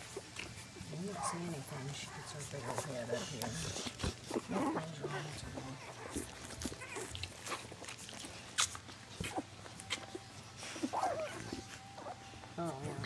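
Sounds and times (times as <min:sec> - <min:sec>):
puppy squeak: 0:09.2 - 0:12.2.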